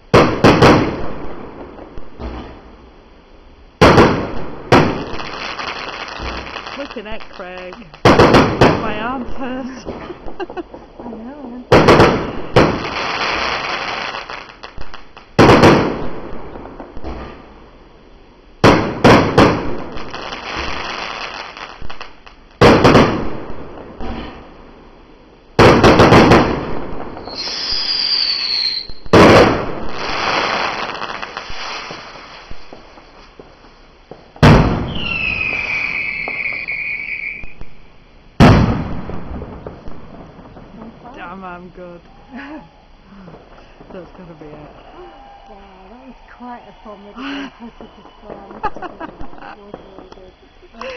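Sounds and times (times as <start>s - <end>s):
firework bursts with crackle: 0.0s - 50.9s
falling firework whistle: 27.1s - 33.4s, 34.4s - 37.9s, 44.7s - 50.9s.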